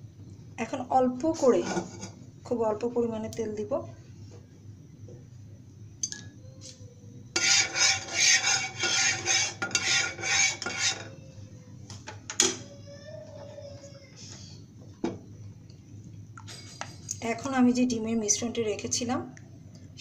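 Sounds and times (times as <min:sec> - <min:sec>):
plastic spatula scraping frying pan: 0:01.4 - 0:02.2, 0:07.4 - 0:11.1.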